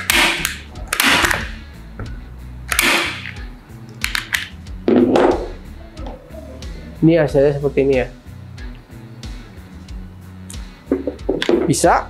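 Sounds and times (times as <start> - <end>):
staple gun firing into wood: 0.0 - 1.6, 2.7 - 3.4.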